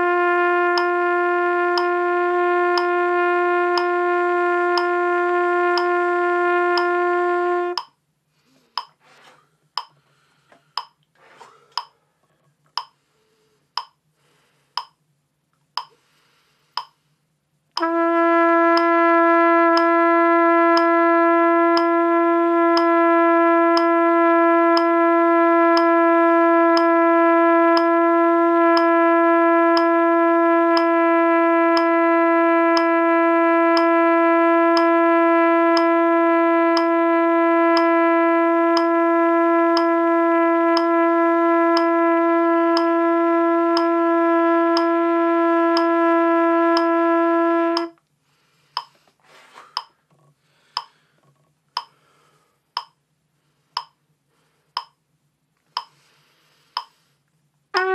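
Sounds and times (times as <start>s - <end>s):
trumpet long tone: 0.0s - 7.9s, 17.8s - 48.8s
metronome clicking: 0.8s - 1.0s, 1.8s - 2.0s, 2.8s - 3.0s, 3.7s - 4.0s, 4.8s - 5.0s, 5.8s - 6.0s, 6.8s - 7.0s, 7.7s - 8.0s, 8.8s - 9.0s, 9.8s - 10.0s, 10.8s - 11.1s, 11.8s - 12.0s, 12.8s - 13.0s, 13.8s - 14.0s, 14.8s - 15.0s, 15.8s - 16.0s, 16.8s - 17.0s, 18.7s - 18.9s, 20.7s - 21.0s, 21.8s - 22.0s, 22.8s - 23.0s, 23.8s - 24.0s, 24.8s - 25.0s, 25.7s - 26.0s, 26.8s - 27.0s, 27.8s - 28.0s, 28.8s - 29.0s, 29.8s - 30.0s, 31.8s - 32.0s, 35.8s - 36.0s, 36.8s - 37.0s, 37.8s - 38.0s, 38.8s - 39.0s, 39.8s - 40.0s, 41.8s - 42.0s, 42.8s - 43.0s, 43.8s - 44.0s, 47.8s - 48.0s, 48.8s - 49.0s, 50.8s - 51.0s, 51.8s - 52.0s, 52.8s - 53.0s, 53.8s - 54.0s, 54.8s - 55.0s, 55.8s - 56.0s, 56.8s - 57.0s.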